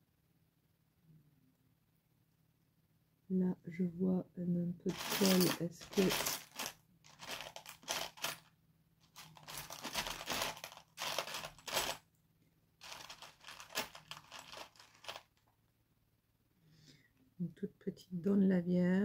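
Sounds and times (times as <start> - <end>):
crinkling rustling handling noise: 4.9 - 12.0, 12.8 - 15.4.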